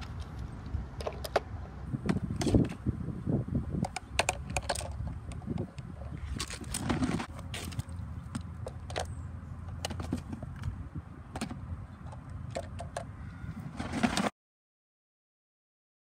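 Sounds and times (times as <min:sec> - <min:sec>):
plastic grabber clicks and clatter: 0:03.8 - 0:05.7.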